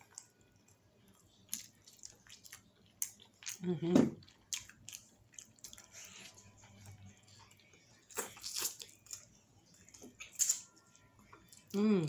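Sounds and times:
person biting and chewing: 0:08.1 - 0:09.3, 0:10.2 - 0:10.6.

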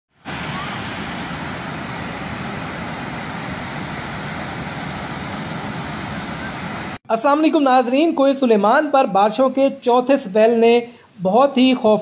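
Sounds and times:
floodwater rushing: 0:00.1 - 0:07.0.

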